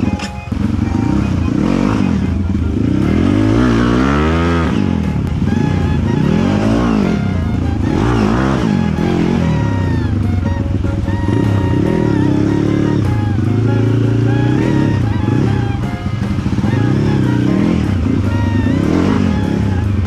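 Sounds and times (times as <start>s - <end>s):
background music: 0.0s - 20.0s
dirt bike engine revving: 0.0s - 20.0s.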